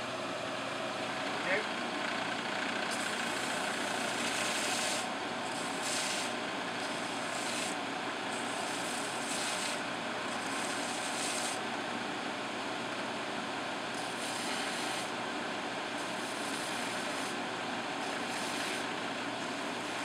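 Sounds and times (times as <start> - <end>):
belt sander running: 0.0 - 20.0
metal grinding on sanding belt: 2.9 - 11.6, 13.9 - 15.1, 16.0 - 17.4, 18.0 - 20.0.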